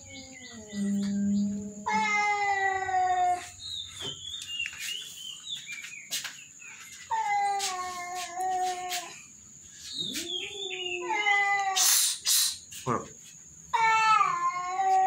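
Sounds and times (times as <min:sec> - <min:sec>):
cat yowling: 0:00.0 - 0:03.6, 0:10.1 - 0:12.0, 0:13.7 - 0:15.0
cat chirping: 0:10.0 - 0:12.1.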